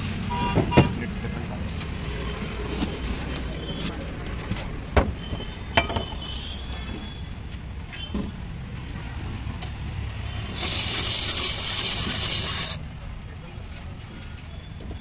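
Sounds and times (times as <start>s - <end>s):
street traffic rumble: 0.0s - 15.0s
ice shaving machine scraping: 10.5s - 12.8s.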